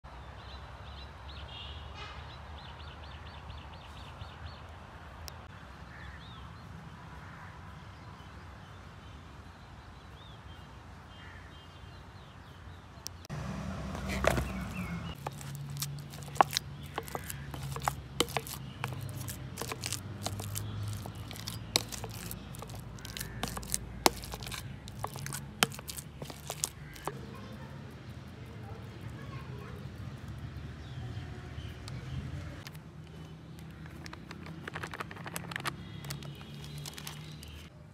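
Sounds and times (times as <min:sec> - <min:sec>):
birds calling: 0:13.8 - 0:27.7
potatoes being mashed: 0:13.9 - 0:27.4, 0:33.6 - 0:37.7.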